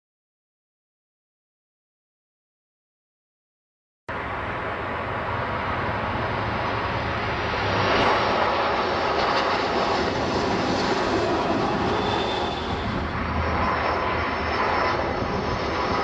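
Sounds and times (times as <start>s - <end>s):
jet plane passing low: 4.1s - 16.0s.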